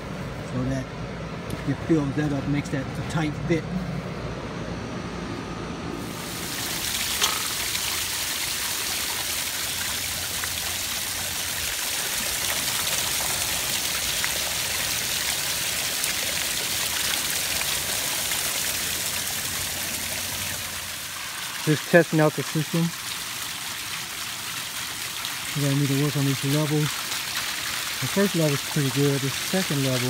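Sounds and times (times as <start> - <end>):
waterfall splashing onto rocks: 6.1 - 30.0.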